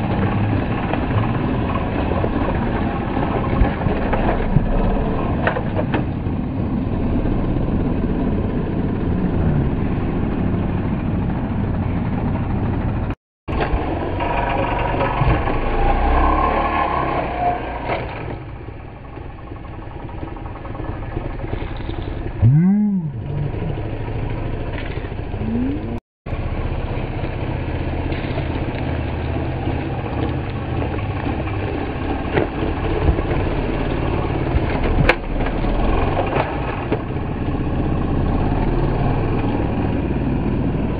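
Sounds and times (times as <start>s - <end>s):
dirt bike engine revving: 21.4s - 26.0s.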